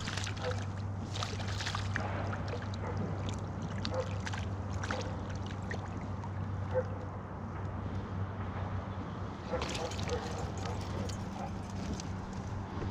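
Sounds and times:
water lapping against kayak hull: 0.0 - 6.8
steady low hum: 0.0 - 12.9.

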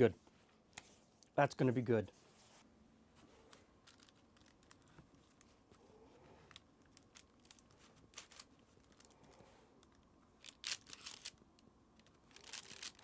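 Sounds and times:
crisp clicks: 3.5 - 5.5, 6.5 - 13.0.

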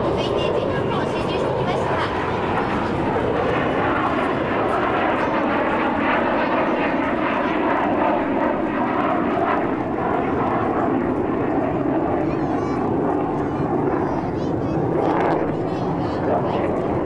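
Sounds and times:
jet flying past: 0.0 - 17.0.

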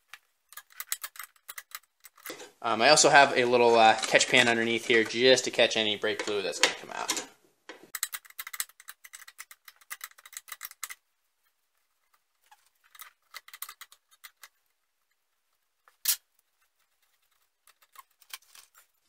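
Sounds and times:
ratcheting wrench clicking: 7.9 - 11.0.

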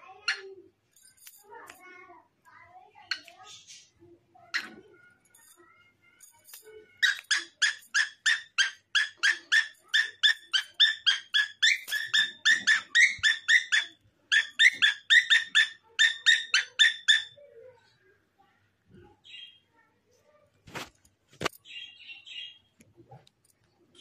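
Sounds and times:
parrot calling: 7.0 - 17.4.

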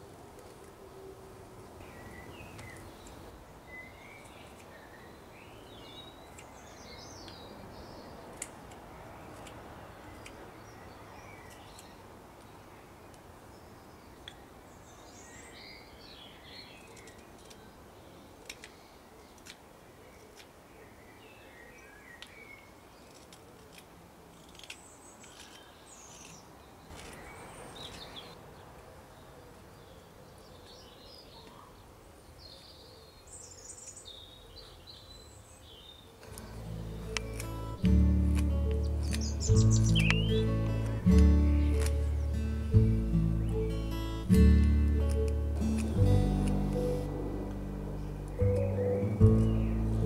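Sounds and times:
knife carving wood clicks: 6.3 - 7.4, 8.3 - 10.4, 16.8 - 17.7, 18.4 - 20.6, 23.0 - 27.2, 37.1 - 42.2, 44.6 - 46.6
birds chirping and singing: 32.5 - 50.0
music: 36.5 - 50.0.

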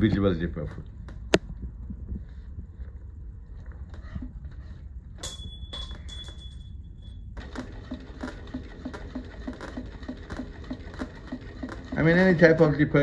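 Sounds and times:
low hum: 0.8 - 7.4
sewing machine stitching: 7.4 - 12.8.

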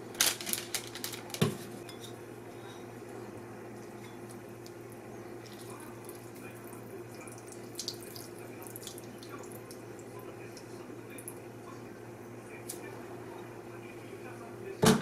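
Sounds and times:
steady low hum: 0.0 - 15.0
juice dripping into bowl: 3.7 - 11.6.

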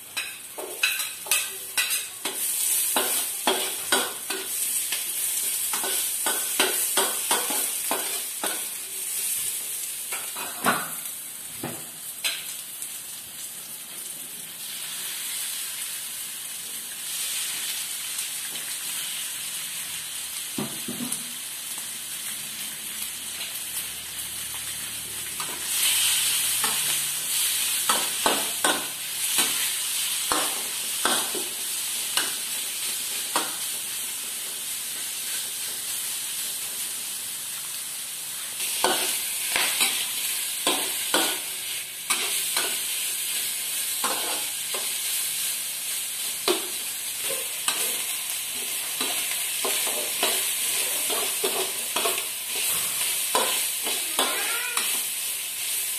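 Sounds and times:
meat sizzling in hot oil: 0.0 - 55.9
spatula scraping a wok: 0.2 - 9.4, 38.6 - 55.9.

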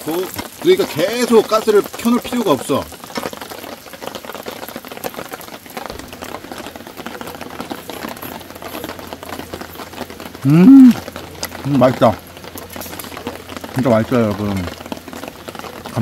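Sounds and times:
pork sizzling on griddle: 0.0 - 16.0
man saying mmm: 10.4 - 11.0.

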